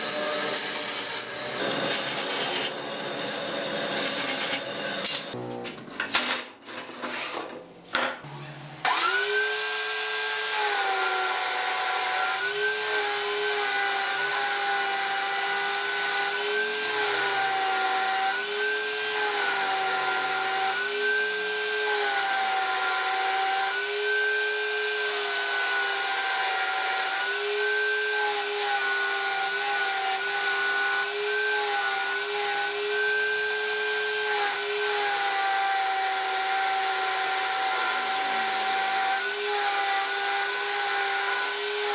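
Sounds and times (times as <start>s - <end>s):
drum sander running: 8.8s - 13.4s.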